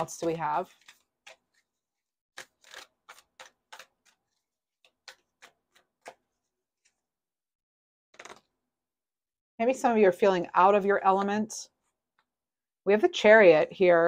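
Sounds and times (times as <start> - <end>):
tarot cards clicking and tapping: 0.1 - 1.8, 2.4 - 7.0, 8.2 - 8.4.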